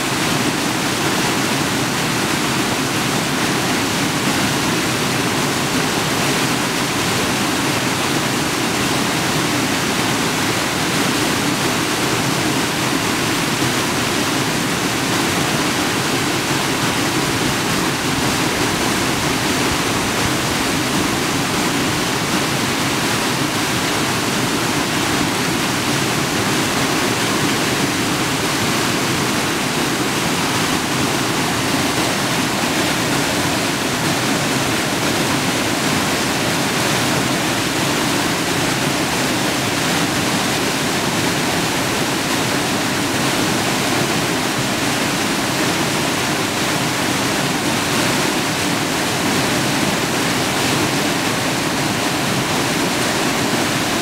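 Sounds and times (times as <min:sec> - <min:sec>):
creek water rushing over falls: 0:00.0 - 0:54.0.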